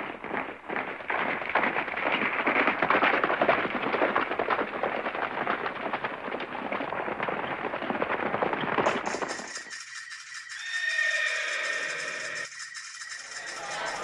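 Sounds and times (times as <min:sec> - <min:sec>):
dense crackling: 0:00.0 - 0:10.6.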